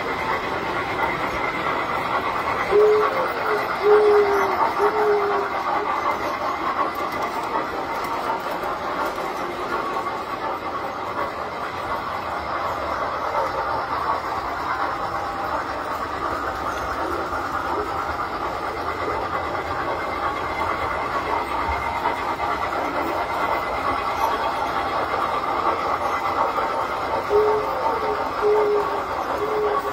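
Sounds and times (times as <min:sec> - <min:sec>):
model trains whirring on metal track: 0:00.0 - 0:29.9.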